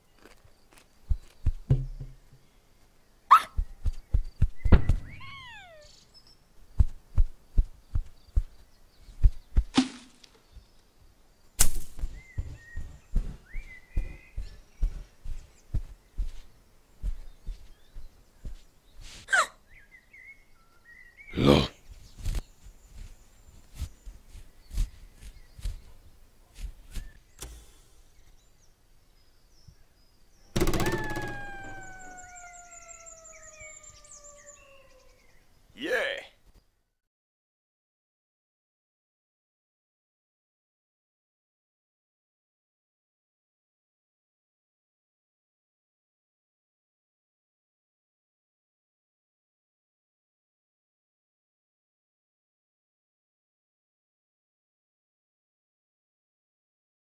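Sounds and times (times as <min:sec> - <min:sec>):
soft low thumps: 0:01.1 - 0:02.5, 0:12.0 - 0:18.6
soft knocks: 0:01.6 - 0:02.5
falling whistled glides: 0:30.7 - 0:34.0.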